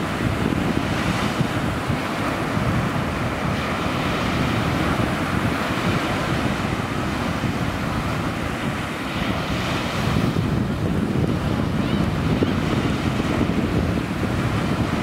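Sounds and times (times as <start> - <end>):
choppy sea waves: 0.0 - 15.0
wind buffeting microphone: 0.0 - 15.0.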